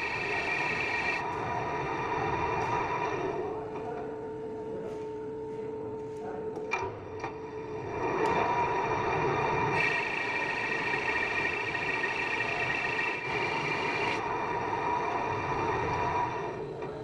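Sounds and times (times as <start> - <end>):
metal lathe running: 0.0 - 1.8, 7.3 - 16.9.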